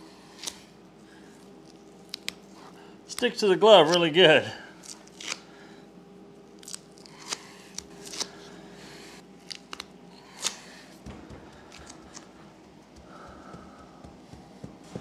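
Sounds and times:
steady low hum: 0.0 - 15.0
sticky peeling sounds: 1.6 - 2.5, 4.8 - 5.4, 6.6 - 8.4, 9.4 - 12.3.

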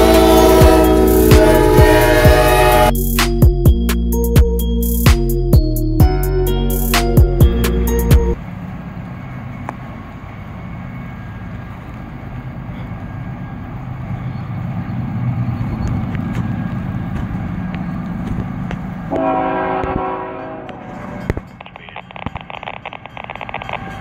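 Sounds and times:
locomotive horn blast: 0.0 - 3.0, 19.1 - 21.3
diesel locomotive rumble: 0.0 - 24.0.

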